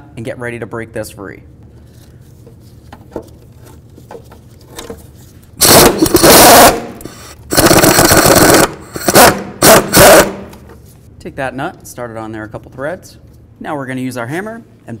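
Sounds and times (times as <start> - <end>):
impact wrench hammering: 5.6 - 10.6.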